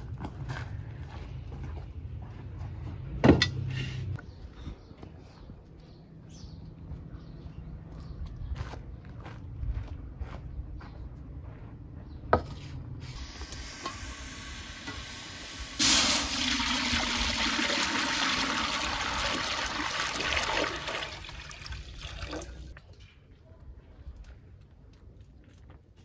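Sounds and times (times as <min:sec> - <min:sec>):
water pouring into a metal pot: 0:15.0 - 0:22.8.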